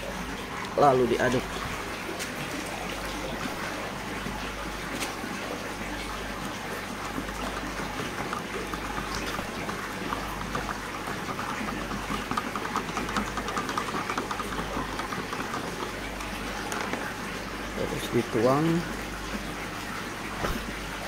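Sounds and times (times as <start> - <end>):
stick stirring liquid in cup: 7.0 - 18.9.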